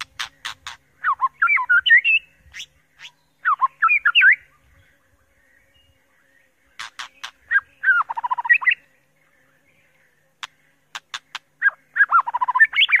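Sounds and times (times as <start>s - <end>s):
bird singing with clicks and whistles: 0.0s - 4.6s, 6.8s - 8.8s, 9.9s - 13.0s.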